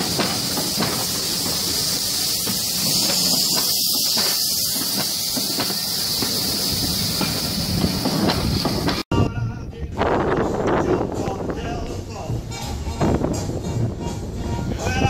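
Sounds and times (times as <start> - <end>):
steam hissing: 0.0 - 9.1.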